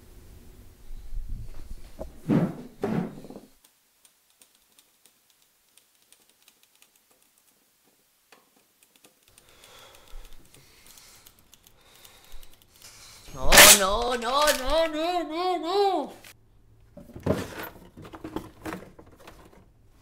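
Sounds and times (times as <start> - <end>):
heavy thumps: 1.4 - 3.6.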